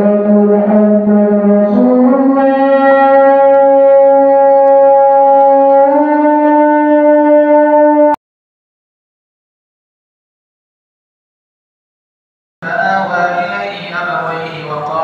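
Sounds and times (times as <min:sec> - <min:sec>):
sustained horn-like note: 0:00.0 - 0:08.2.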